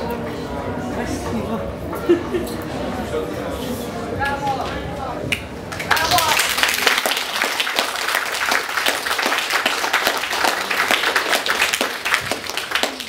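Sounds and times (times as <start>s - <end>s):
crowd applauding: 5.7s - 13.0s.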